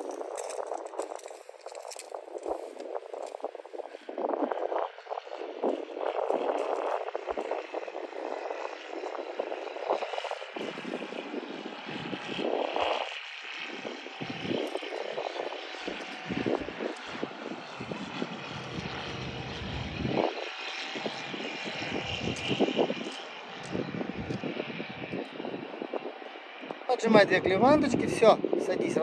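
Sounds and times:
propeller aircraft engine droning: 0:00.0 - 0:29.0
low rumbles: 0:14.2 - 0:25.1.

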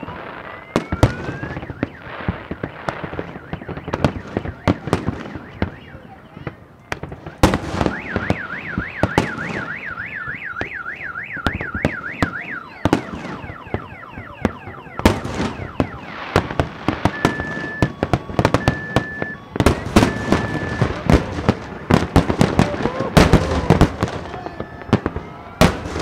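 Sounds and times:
car alarm warbling: 0:00.0 - 0:26.0
fireworks bangs and crackles: 0:00.0 - 0:26.0
falling whistles: 0:17.0 - 0:21.2
short high beeps: 0:17.1 - 0:18.0, 0:18.6 - 0:21.1.

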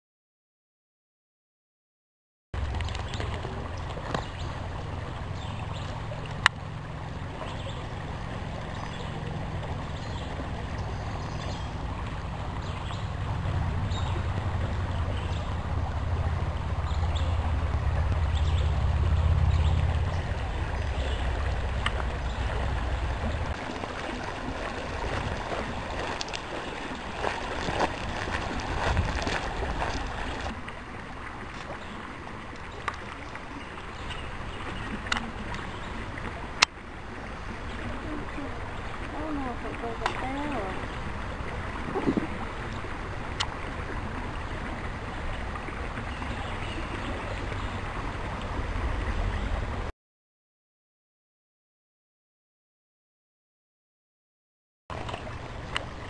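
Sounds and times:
low rumble on microphone: 0:02.6 - 0:32.0
creek running over rocks: 0:02.6 - 0:49.9, 0:54.9 - 0:56.0.

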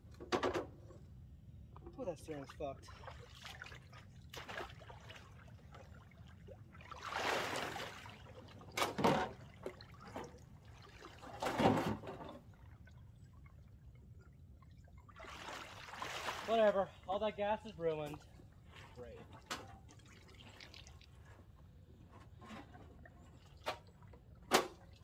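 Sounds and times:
small splashes: 0:01.8 - 0:17.1, 0:18.0 - 0:21.6
pond water splashing: 0:02.3 - 0:21.8.

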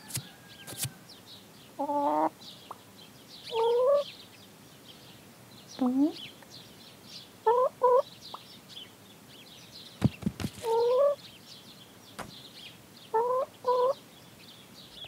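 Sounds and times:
hen clucking: 0:01.8 - 0:02.9, 0:03.5 - 0:04.1, 0:07.4 - 0:08.4, 0:10.0 - 0:11.2, 0:13.1 - 0:14.0
soft knocks: 0:12.2 - 0:12.4.

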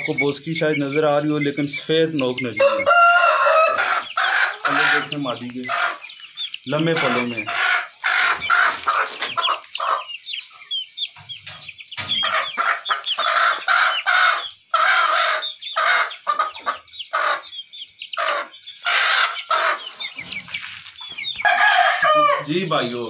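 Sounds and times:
chickens clucking: 0:00.0 - 0:23.0
rooster crowing: 0:02.6 - 0:05.2, 0:21.3 - 0:22.7.

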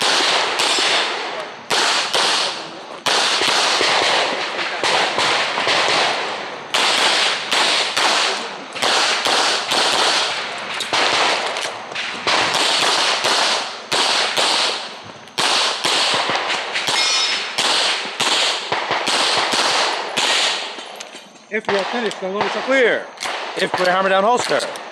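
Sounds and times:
handgun shots: 0:06.8 - 0:11.7, 0:15.4 - 0:24.9.

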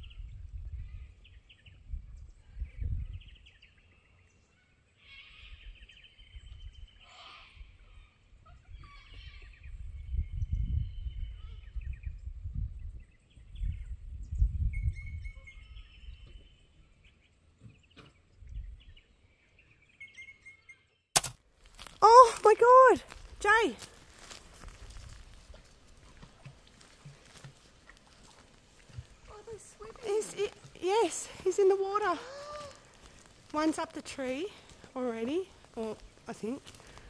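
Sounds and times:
wind buffeting microphone: 0:00.0 - 0:03.7, 0:07.6 - 0:16.6, 0:18.4 - 0:19.1, 0:24.4 - 0:27.4
birds chirping and trilling: 0:00.0 - 0:21.1, 0:26.7 - 0:37.0.

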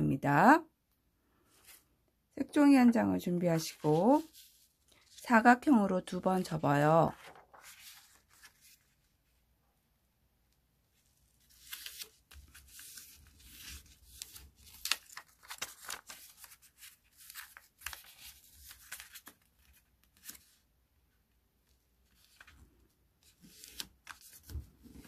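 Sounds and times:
paper rustling and crackling: 0:03.5 - 0:05.3, 0:06.4 - 0:09.4, 0:11.0 - 0:20.7, 0:22.0 - 0:25.0.

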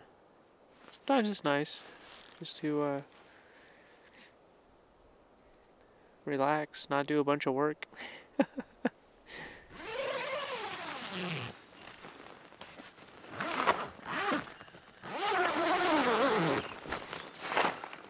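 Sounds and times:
tent zipper pulled open: 0:02.0 - 0:02.4, 0:09.7 - 0:18.0.

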